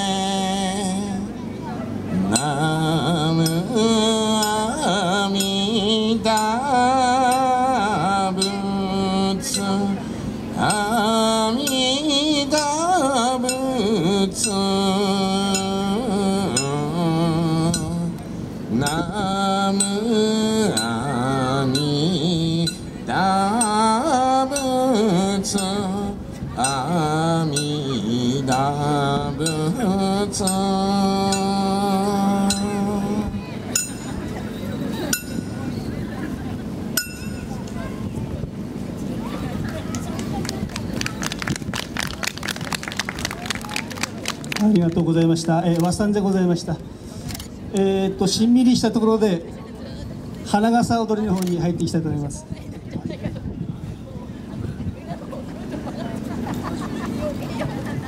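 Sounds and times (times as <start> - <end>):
person singing folk song: 2.1 - 33.5.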